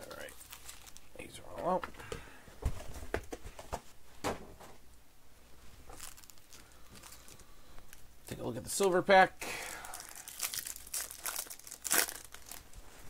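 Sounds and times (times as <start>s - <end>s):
foil rustling: 0.0s - 1.3s, 5.9s - 7.4s, 9.8s - 13.0s.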